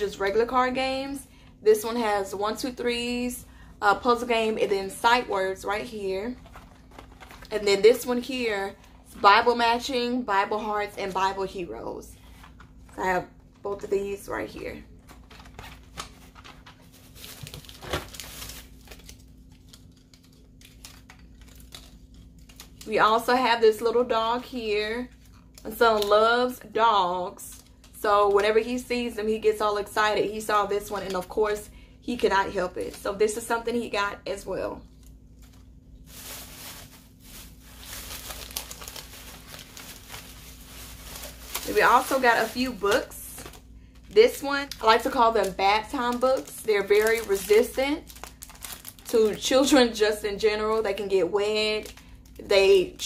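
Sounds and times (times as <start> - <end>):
plastic packaging rustling: 4.1 - 9.8, 12.2 - 23.4, 34.8 - 53.0.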